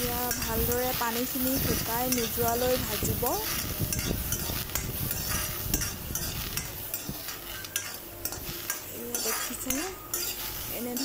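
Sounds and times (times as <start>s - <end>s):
low sizzle: 0.0s - 11.0s
nuts rattling in a pan: 0.0s - 11.0s.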